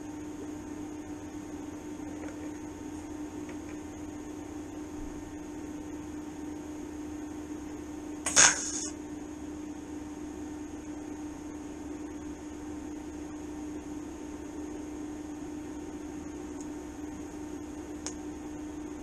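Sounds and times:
steady welder hum: 0:00.0 - 0:19.0
welding arc crackle: 0:08.2 - 0:09.0.

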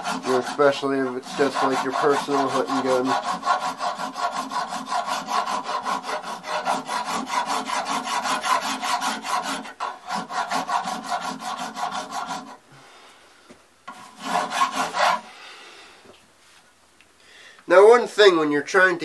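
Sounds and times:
file rasping on brass: 0:00.0 - 0:12.6, 0:13.9 - 0:15.3.

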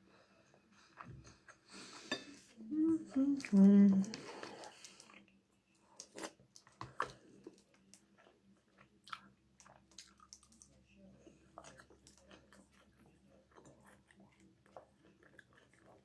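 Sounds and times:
chewing and mouth noises: 0:03.4 - 0:16.0.

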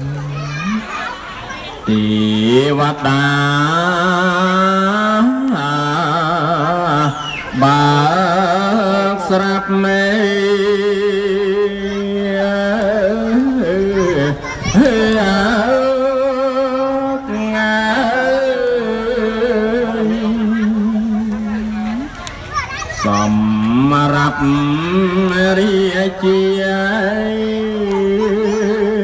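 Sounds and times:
man chanting verse: 0:01.8 - 0:22.2, 0:23.0 - 0:29.0.

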